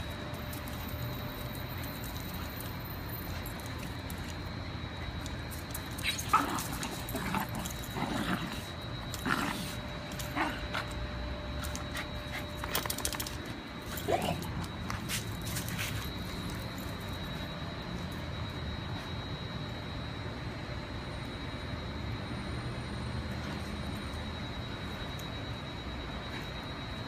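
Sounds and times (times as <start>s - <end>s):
dogs play-wrestling: 0.2s - 17.5s.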